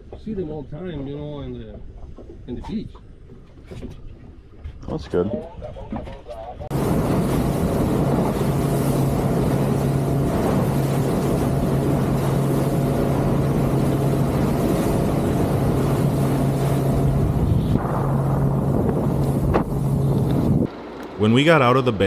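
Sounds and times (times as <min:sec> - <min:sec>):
rush of wind and water: 0:06.7 - 0:20.8
motorboat engine hum: 0:06.7 - 0:22.0.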